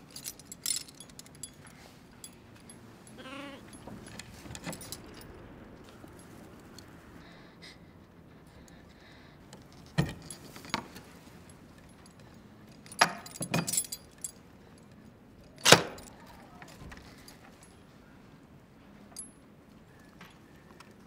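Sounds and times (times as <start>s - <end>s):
metal lock clinking and clanking: 3.7s - 5.3s, 9.6s - 11.1s, 12.8s - 14.4s, 15.5s - 16.2s.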